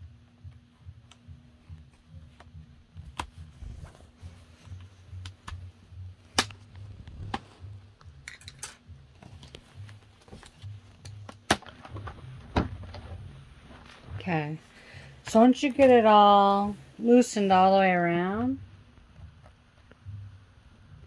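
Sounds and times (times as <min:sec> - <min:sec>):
plastic clips snapping loose: 0:06.3 - 0:07.4.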